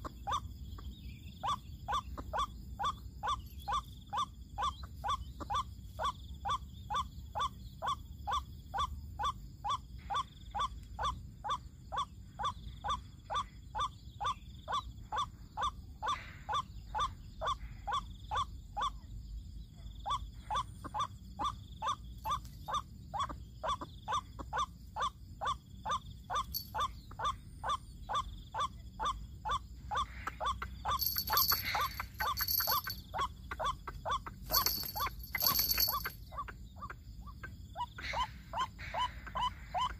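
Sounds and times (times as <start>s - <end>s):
waterhen calling: 30.0s - 36.5s.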